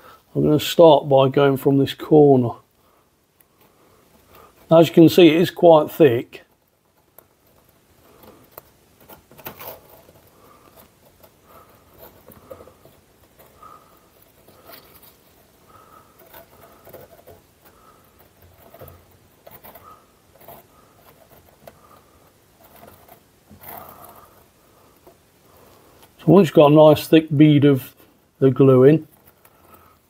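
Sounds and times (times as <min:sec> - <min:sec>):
soft clicks and scrapes: 0:06.4 - 0:26.2, 0:29.0 - 0:30.0.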